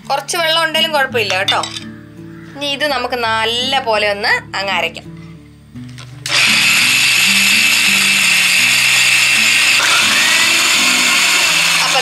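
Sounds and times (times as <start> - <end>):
mixer grinder motor whining: 6.3 - 12.0.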